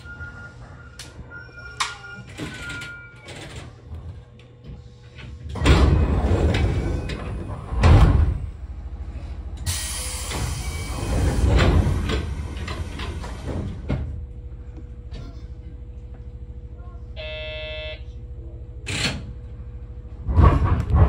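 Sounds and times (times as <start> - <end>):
steady low rumble: 3.8 - 9.8
pneumatic door bursts: 5.5 - 8.5, 9.6 - 13.9.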